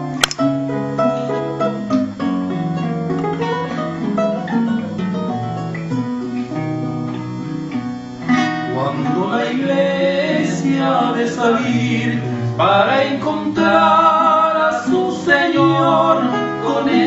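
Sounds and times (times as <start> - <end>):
acoustic guitars playing: 0.0 - 17.0
man singing: 8.6 - 17.0.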